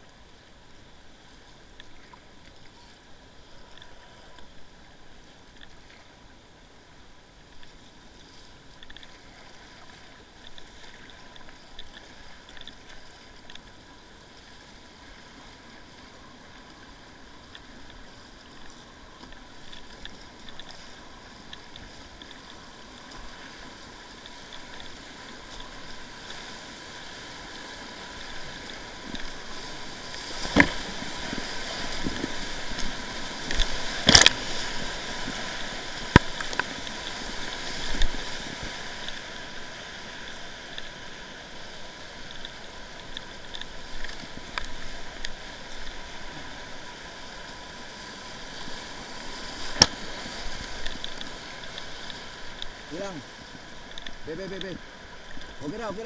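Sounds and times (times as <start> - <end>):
rushing whitewater: 0.0 - 56.0
paddle splashing in water: 16.6 - 55.8.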